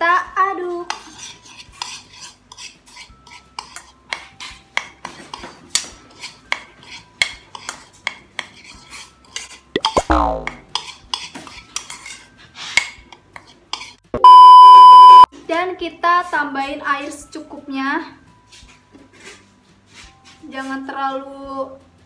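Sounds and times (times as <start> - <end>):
metal spoon scraping a bowl: 0.7 - 9.7, 10.6 - 14.0.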